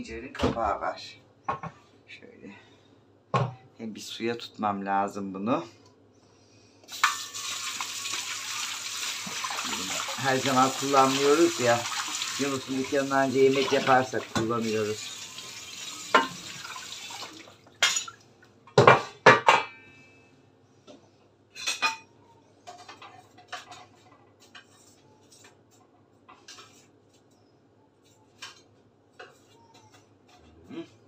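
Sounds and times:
metal cookware clattering: 15.9s - 16.7s, 17.8s - 18.2s.

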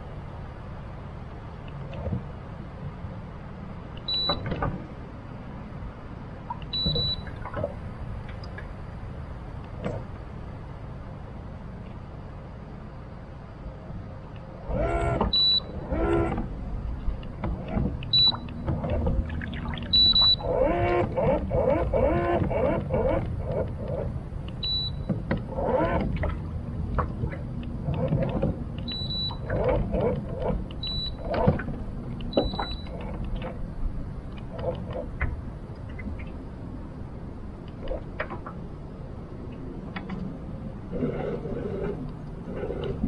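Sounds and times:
short high electronic beeps: 19.9s - 20.5s.

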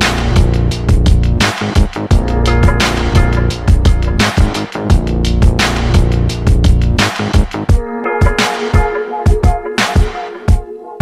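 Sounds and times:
electronic music with fast beat: 0.0s - 11.0s.

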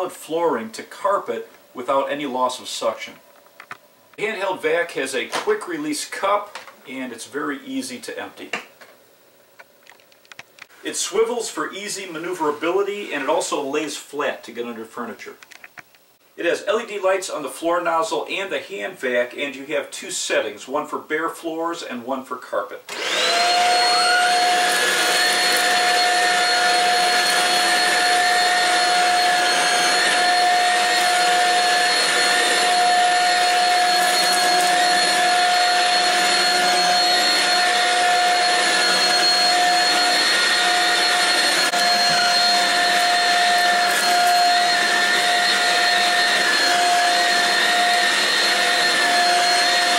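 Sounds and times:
vacuum cleaner motor whine: 22.9s - 49.9s.

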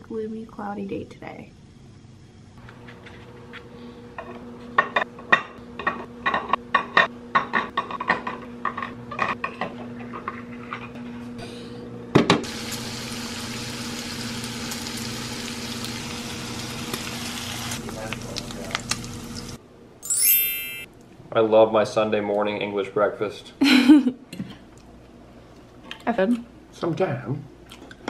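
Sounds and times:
bacon sizzling in a frying pan: 12.4s - 19.6s.

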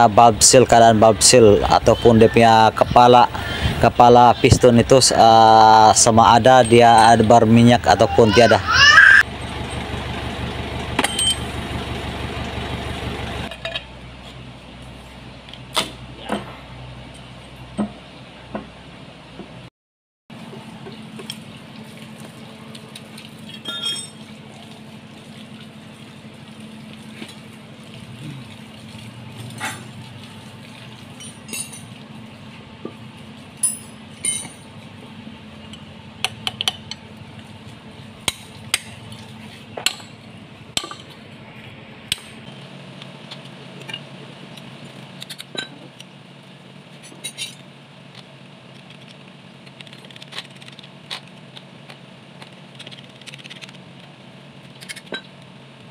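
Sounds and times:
metal tools clinking on engine block: 6.0s - 7.4s, 10.9s - 11.6s, 13.5s - 14.0s, 23.4s - 24.4s, 31.0s - 32.1s, 33.5s - 35.0s, 35.6s - 37.1s, 38.2s - 41.2s, 43.3s - 46.0s, 46.9s - 47.7s.

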